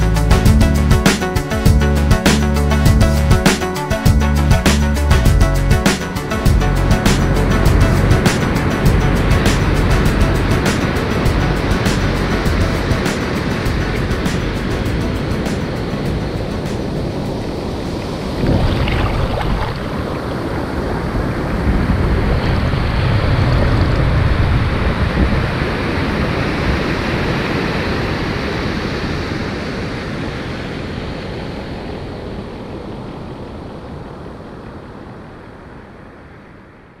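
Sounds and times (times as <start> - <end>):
ocean surf breaking on beach: 7.9 - 36.8.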